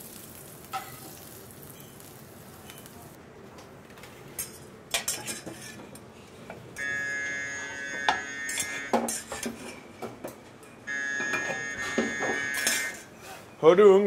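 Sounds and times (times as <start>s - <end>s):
metal pans clanking: 4.4s - 6.0s, 8.1s - 10.3s
oven alarm beep: 6.8s - 9.0s, 10.7s - 13.0s.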